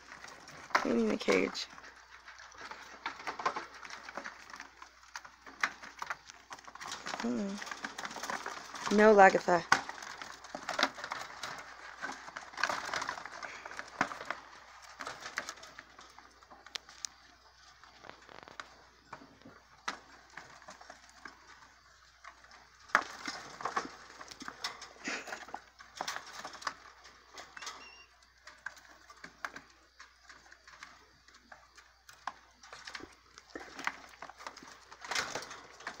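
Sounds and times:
rat squeak: 27.6 - 28.1.

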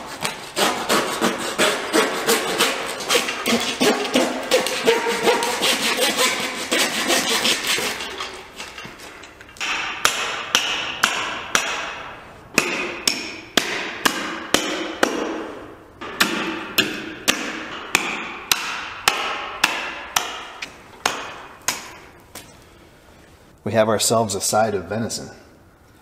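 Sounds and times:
hatchet chopping through bone: 9.6 - 12.0, 12.6 - 15.4, 16.0 - 22.0.

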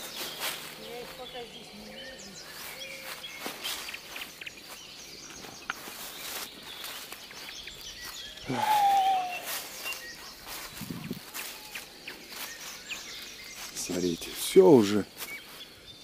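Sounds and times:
footsteps on dry leaves: 0.0 - 15.8
drawn-out falling call: 8.4 - 9.8.

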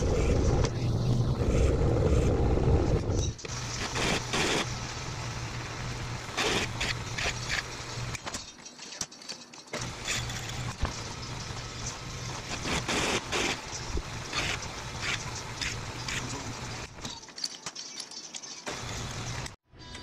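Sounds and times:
pillar drill motor running: 1.8 - 8.2, 9.8 - 17.0
drill scraping and chattering on metal: 3.4 - 4.7, 6.2 - 19.6.

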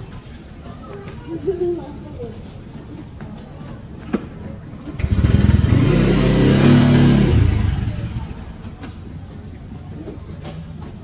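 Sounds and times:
passing vehicle engine: 5.0 - 8.8.

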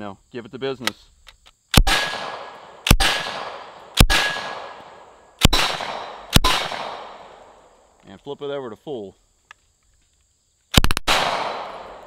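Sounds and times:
gunshots with echo: 1.8 - 7.5, 10.8 - 12.0.

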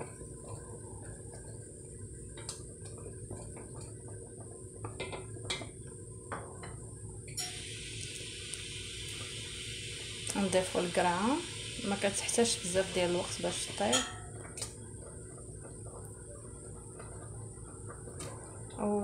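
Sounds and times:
simmering broth rumble: 0.0 - 19.0
steady hiss: 0.0 - 19.0.

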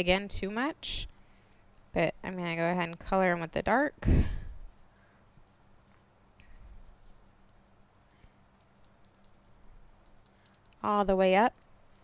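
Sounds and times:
marker scratching on cardstock: 4.3 - 7.8.

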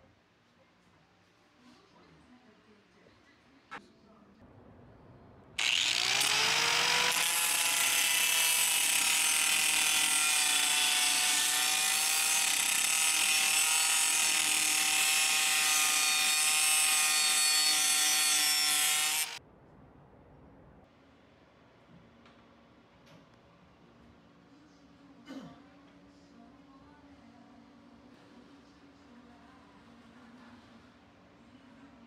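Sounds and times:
angle grinder cutting metal: 5.6 - 19.4.

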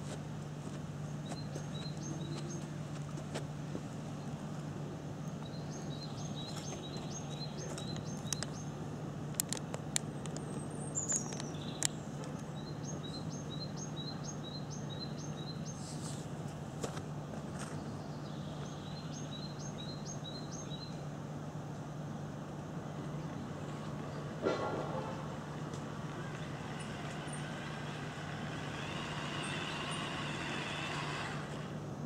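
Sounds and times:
steady low hum: 0.0 - 32.0
small bird singing: 1.1 - 2.7, 5.2 - 8.8, 10.4 - 15.9, 17.7 - 21.0.

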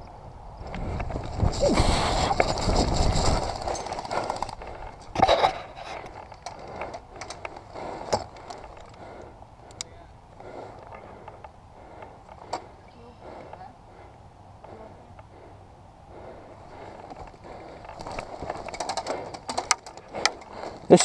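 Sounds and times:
faint clicks: 8.2 - 9.9.

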